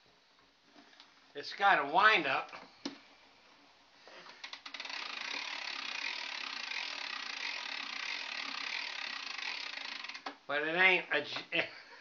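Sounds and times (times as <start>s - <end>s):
hand crank ratchet clicking: 4.3s - 10.4s.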